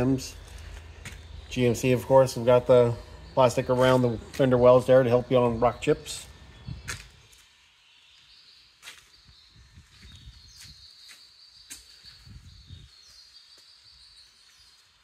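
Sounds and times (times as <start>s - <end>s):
footsteps on concrete: 0.3s - 1.6s, 3.6s - 4.9s, 6.7s - 7.5s, 8.2s - 12.3s.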